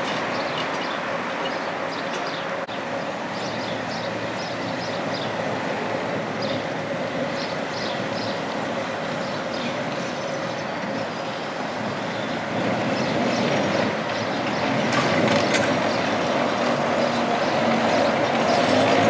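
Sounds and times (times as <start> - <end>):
tram wheels rumbling on rails: 0.0 - 19.0.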